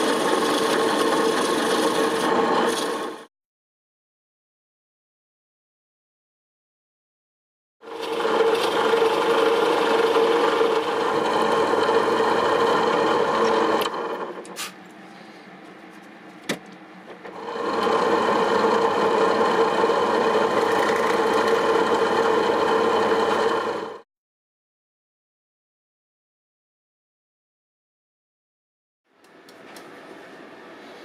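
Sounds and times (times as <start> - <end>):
drill press boring into wood: 0.0 - 3.2, 7.9 - 14.5, 17.3 - 24.0.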